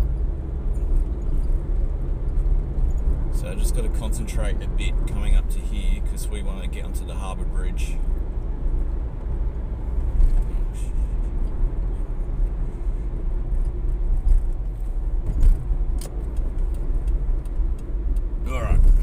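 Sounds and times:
car engine and road rumble: 0.0s - 19.0s
faint clicks and rattles: 13.5s - 19.0s.

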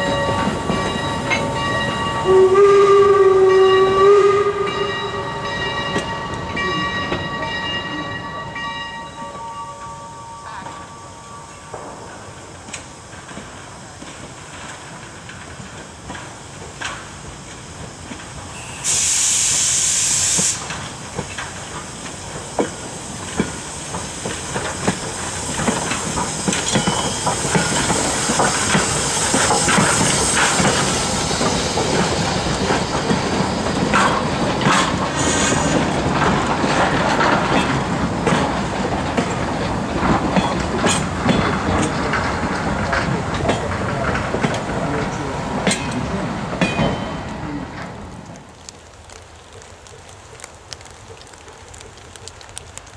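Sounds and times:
steam locomotive passing: 0.0s - 52.9s
wheels clicking over rail joints: 12.6s - 18.5s, 20.6s - 52.9s
steam hiss burst: 16.3s - 36.1s.

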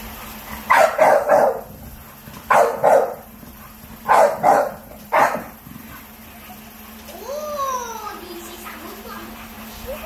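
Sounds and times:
dog barking: 0.7s - 5.6s.

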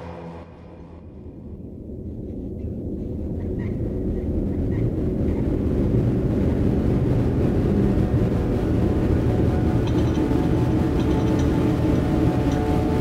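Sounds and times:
low rumbling drone: 0.0s - 13.0s
high ringing tones: 9.4s - 13.0s.

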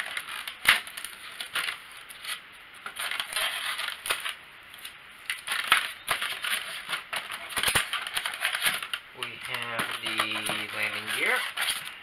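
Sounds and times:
part scraping against foam: 9.5s - 12.0s.

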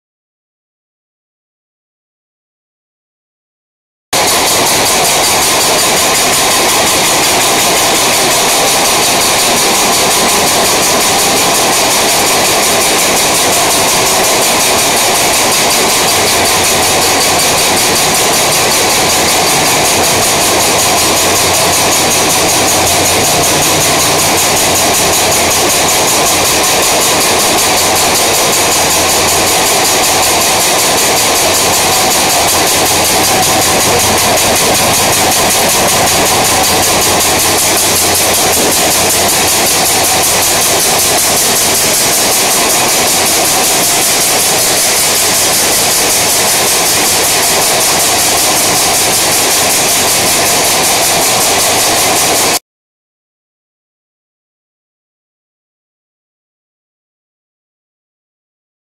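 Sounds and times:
paper roll machine whirring: 4.2s - 52.6s
low hum: 15.8s - 42.9s.

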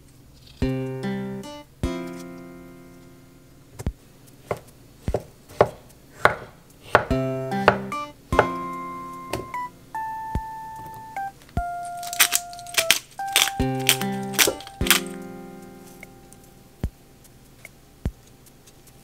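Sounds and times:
light instrumental music: 0.6s - 4.7s, 5.6s - 19.0s
knife knocking on cutting board: 4.5s - 8.6s
pepper grinder clicking: 11.8s - 15.2s.

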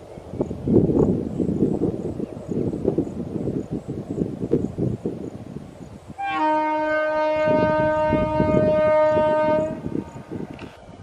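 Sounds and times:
train horn blast: 6.2s - 10.4s.

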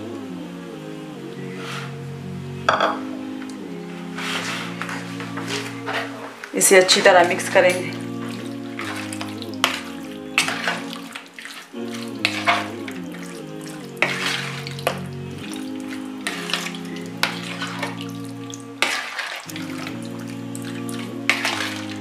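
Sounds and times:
background music: 0.0s - 22.0s
wet squelching of raw chicken: 7.8s - 22.0s.

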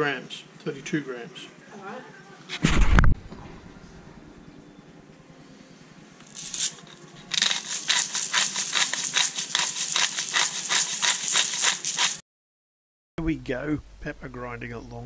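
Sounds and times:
pepper mill grinding: 6.3s - 12.2s.

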